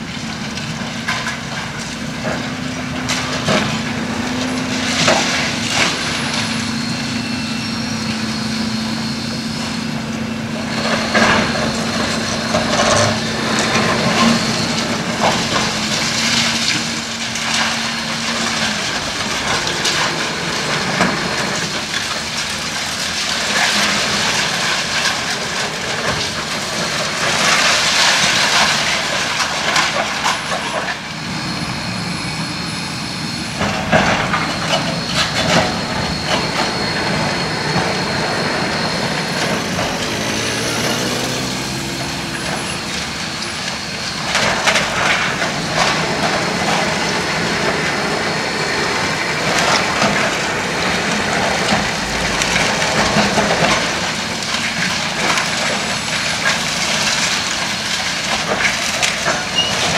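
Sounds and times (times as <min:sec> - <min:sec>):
heavy machine humming: 0:00.0 - 0:59.9
debris crunching and clattering: 0:10.8 - 0:31.0, 0:38.8 - 0:59.9.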